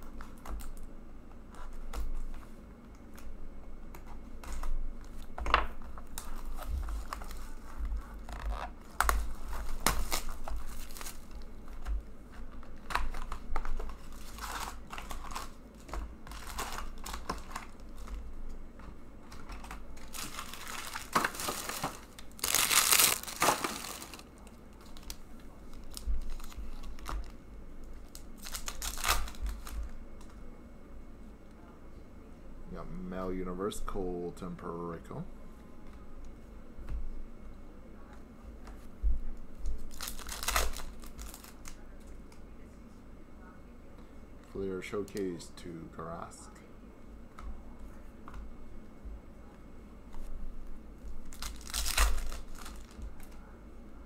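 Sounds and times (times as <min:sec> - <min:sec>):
wrapping tearing and crinkling: 0:06.0 - 0:18.4, 0:19.3 - 0:30.4, 0:39.7 - 0:42.0, 0:51.1 - 0:53.5.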